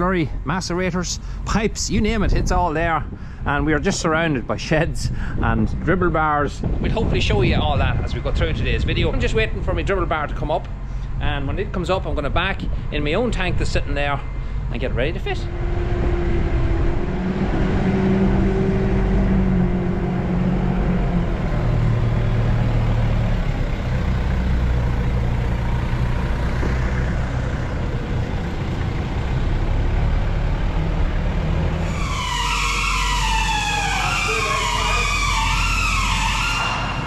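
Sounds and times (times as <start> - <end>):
diesel forklift engine running: 14.2 - 37.0
higher tones stepping up and down: 31.3 - 37.0.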